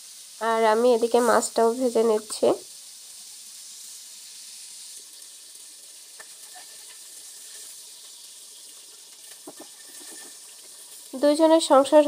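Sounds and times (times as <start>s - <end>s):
fish frying in hot oil: 0.0s - 12.0s.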